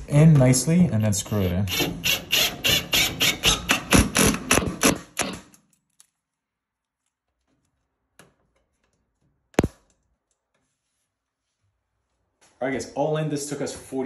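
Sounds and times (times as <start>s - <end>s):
cordless drill driving a screw: 1.7s - 5.3s.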